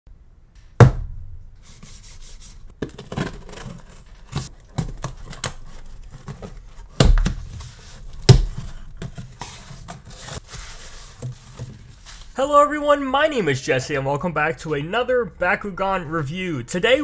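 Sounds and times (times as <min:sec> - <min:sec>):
cardboard rubbing: 0:01.6 - 0:12.4
packing tape tearing: 0:02.8 - 0:12.3.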